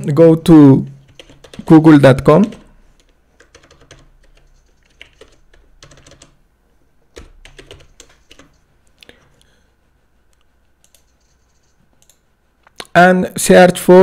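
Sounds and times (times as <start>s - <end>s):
typing on a keyboard: 1.1s - 1.7s, 2.4s - 6.4s, 7.1s - 8.6s, 10.8s - 12.2s.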